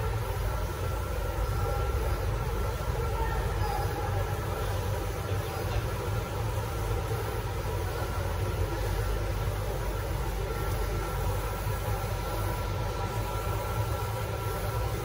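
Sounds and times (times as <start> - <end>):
faint high whine: 0.0 - 15.0
printer machine hum and whir: 0.0 - 15.0.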